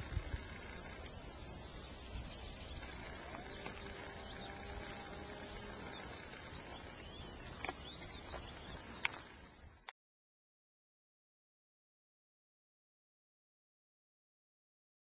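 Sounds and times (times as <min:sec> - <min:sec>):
wind rumble on microphone: 0:00.0 - 0:09.8
faint bird chirps: 0:00.0 - 0:09.9.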